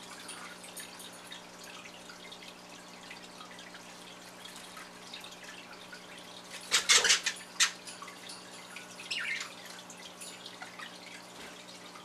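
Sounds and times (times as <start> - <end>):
budgerigars chirping: 9.1 - 9.5.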